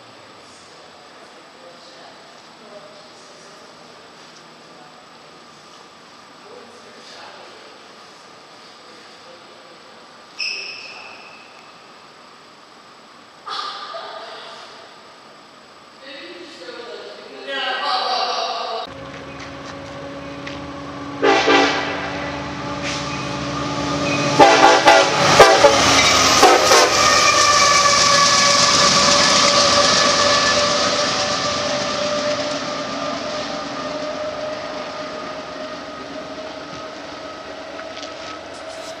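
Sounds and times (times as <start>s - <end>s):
diesel locomotive engines rumbling: 17.8s - 39.0s
train horn blasts: 19.7s - 32.3s.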